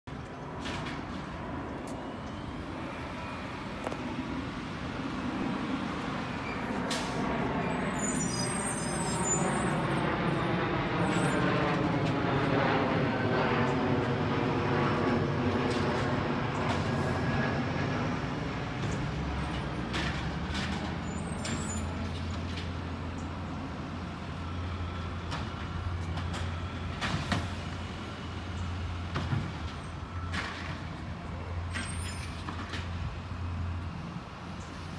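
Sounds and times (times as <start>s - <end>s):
garbage truck diesel engine: 18.1s - 34.9s.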